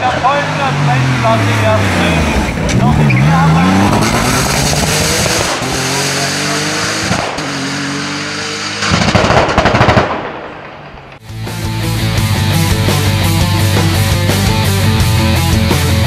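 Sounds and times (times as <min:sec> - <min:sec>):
engine crackling and banging: 0:00.0 - 0:06.0
race car engine accelerating: 0:00.0 - 0:08.9.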